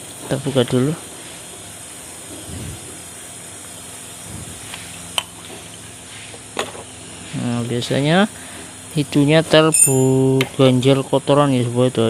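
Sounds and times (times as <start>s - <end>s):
steady hiss: 0.0s - 12.0s
handling small metal parts: 9.7s - 10.2s.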